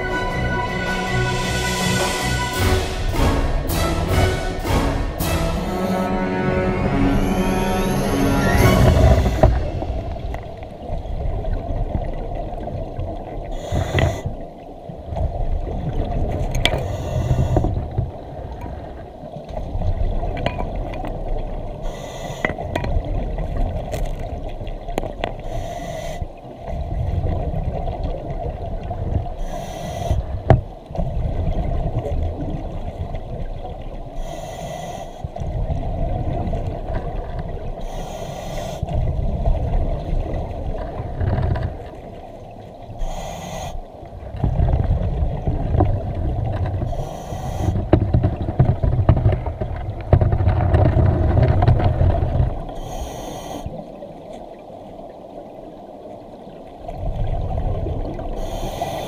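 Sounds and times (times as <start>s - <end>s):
low underwater rumbling: 0.0s - 25.6s, 26.2s - 34.4s, 35.2s - 53.0s, 53.6s - 58.7s
diver inhaling through regulator: 13.5s - 14.4s, 16.7s - 17.8s, 21.8s - 22.6s, 25.4s - 26.3s, 29.4s - 30.4s, 34.2s - 35.4s, 37.8s - 39.0s, 43.0s - 43.9s, 46.9s - 47.9s, 52.7s - 53.8s, 58.4s - 59.0s.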